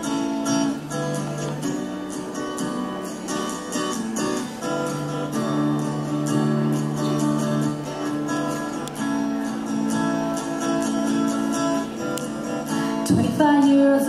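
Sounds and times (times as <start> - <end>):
acoustic guitar strumming: 0.0 - 14.0.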